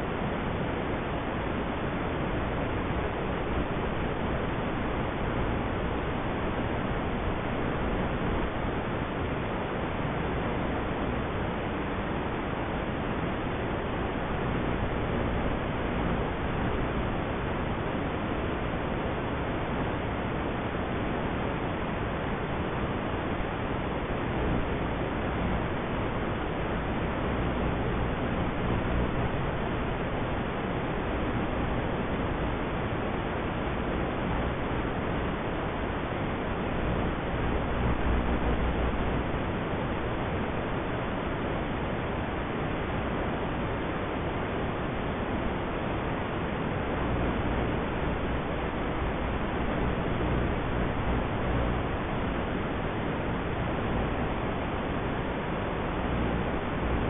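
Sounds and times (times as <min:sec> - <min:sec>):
static hiss: 0:00.0 - 0:57.0.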